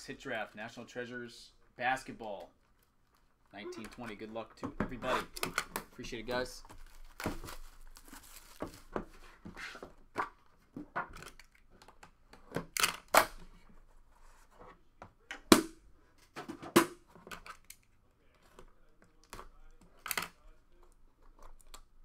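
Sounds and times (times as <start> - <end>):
plastic wrap tearing and crinkling: 6.7 - 9.0.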